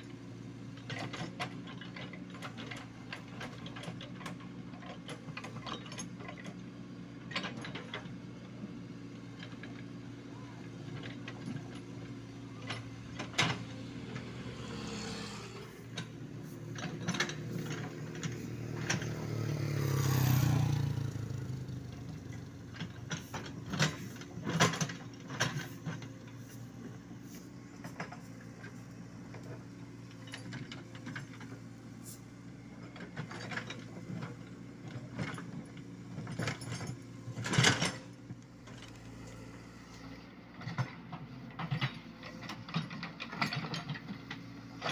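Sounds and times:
excavator diesel engine running: 0:00.0 - 0:44.9
metallic clanks and knocks: 0:10.9 - 0:31.6, 0:33.0 - 0:39.4
vehicle passing: 0:13.8 - 0:16.6, 0:17.3 - 0:22.4.

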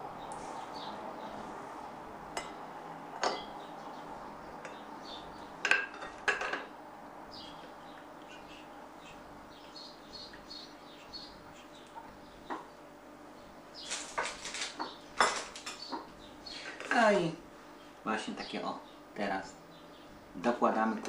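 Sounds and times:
faint chirping: 0:00.0 - 0:05.6, 0:07.2 - 0:20.5
clinks on ceramic plates: 0:03.2 - 0:03.5, 0:05.7 - 0:06.7.

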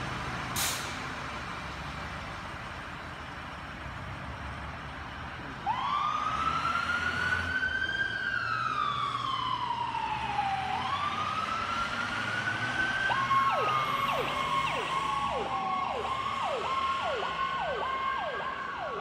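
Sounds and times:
siren slow wail: 0:05.6 - 0:19.0.

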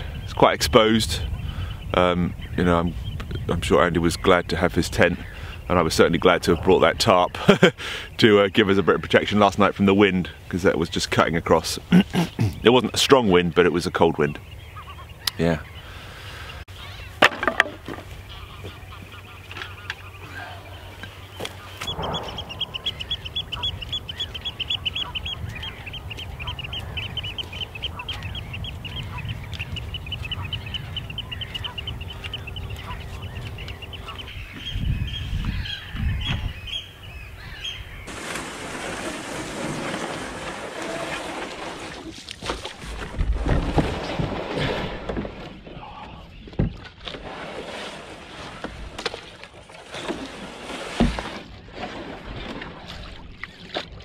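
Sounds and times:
waterbirds chattering: 0:00.0 - 0:43.3, 0:44.0 - 0:54.0
wind: 0:00.0 - 0:54.0
rushing water: 0:38.1 - 0:45.1, 0:47.2 - 0:54.0.

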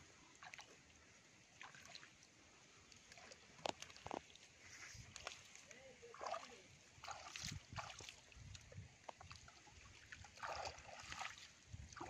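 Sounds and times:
hands splashing in water: 0:10.3 - 0:12.0.

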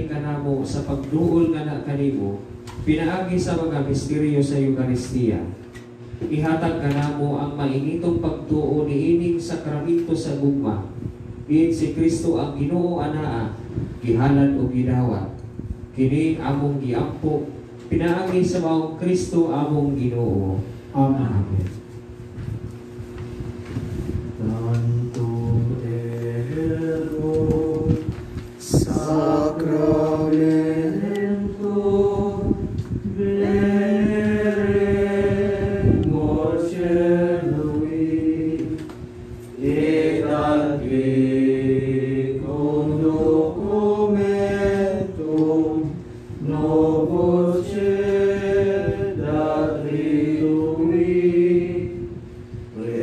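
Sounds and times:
slow hymn singing: 0:24.3 - 0:53.0.

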